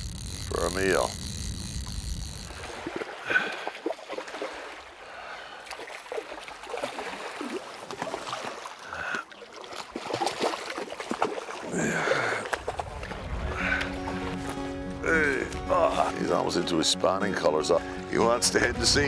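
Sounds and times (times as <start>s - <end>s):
fish splashing in water: 2.0s - 14.5s.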